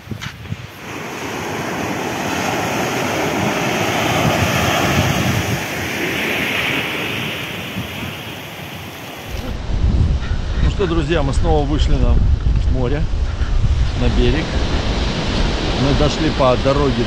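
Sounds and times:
surf washing onto beach: 0.0s - 9.6s, 13.7s - 17.0s
wind noise on microphone: 0.0s - 17.0s.

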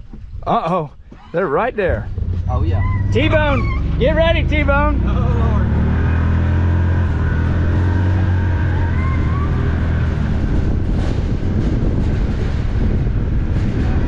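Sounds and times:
utility vehicle engine running: 1.8s - 14.0s.

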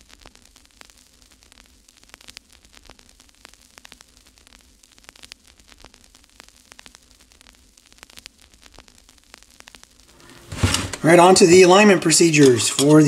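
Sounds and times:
static crackling clicks: 0.0s - 13.0s
steady hiss: 0.0s - 13.0s.

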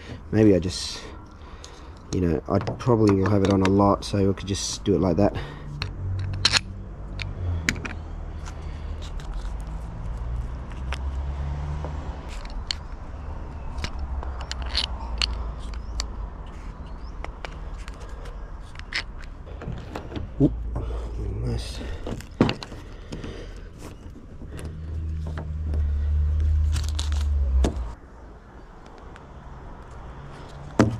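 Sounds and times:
small parts clicking and tapping: 1.6s - 4.0s, 5.7s - 11.2s, 12.2s - 20.1s.

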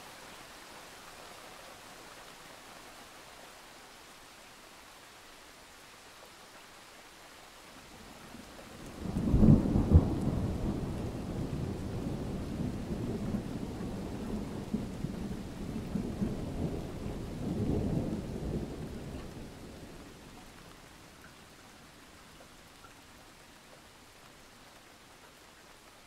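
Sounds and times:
steady rain: 0.0s - 26.0s
thunder rumbling: 8.9s - 19.8s.

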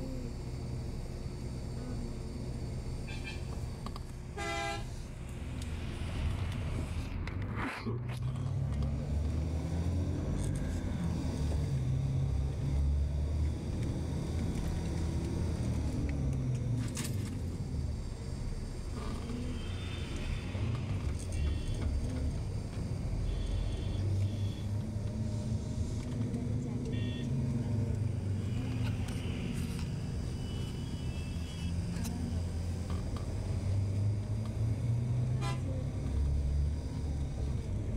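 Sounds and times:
bus passing: 0.0s - 37.9s
vehicle engine and road rumble: 0.0s - 37.9s.

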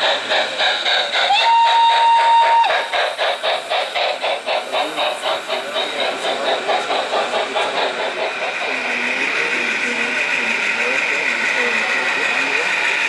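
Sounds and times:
model train clattering: 0.0s - 13.0s
train whistle: 1.2s - 2.9s.

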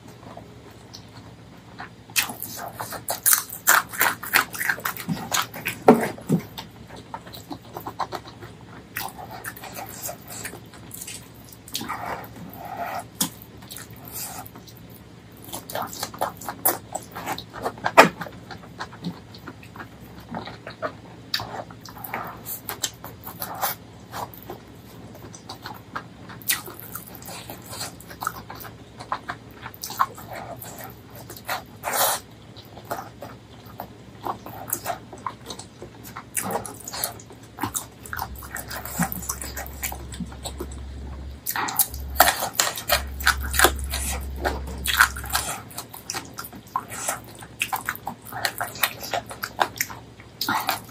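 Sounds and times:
person chewing: 0.9s - 50.9s.

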